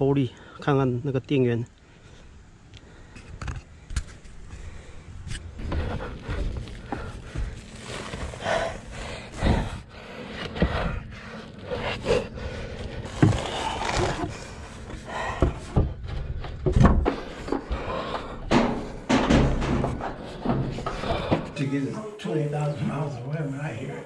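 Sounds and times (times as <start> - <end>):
person breathing: 1.8 - 21.6
footsteps knocks and shuffling: 3.1 - 24.0.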